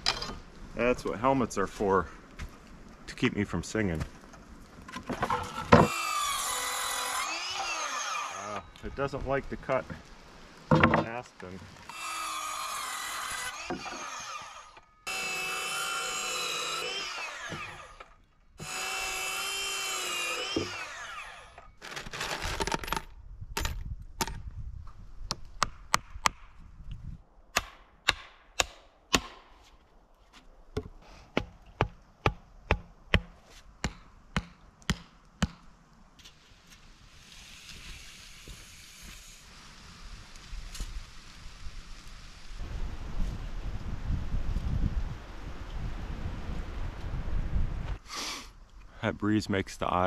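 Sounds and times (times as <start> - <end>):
circular saw cutting boards: 5.0 - 9.2, 10.7 - 22.6.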